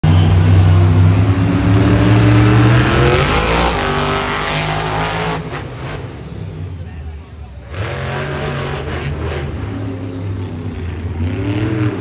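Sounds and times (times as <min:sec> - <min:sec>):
truck engine revving hard: 0:00.1 - 0:06.6, 0:07.6 - 0:12.0.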